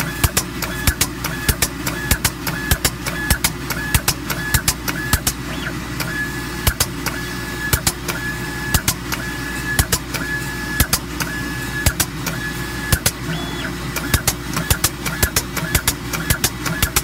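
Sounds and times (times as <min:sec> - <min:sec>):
spray coater hum and hiss: 0:00.0 - 0:17.0
sharp clicks: 0:13.9 - 0:17.0.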